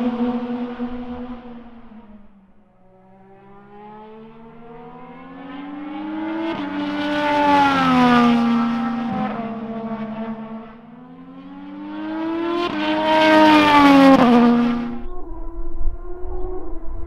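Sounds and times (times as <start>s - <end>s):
race car engine passing: 0.0s - 17.0s.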